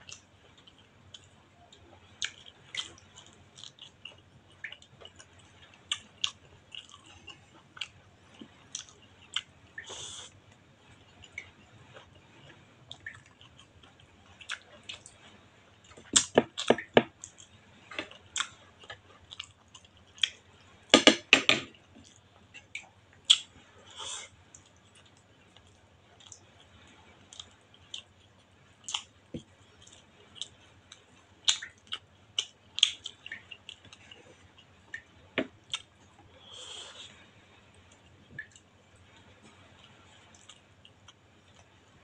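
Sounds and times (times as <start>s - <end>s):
person chewing food: 0.0s - 41.7s.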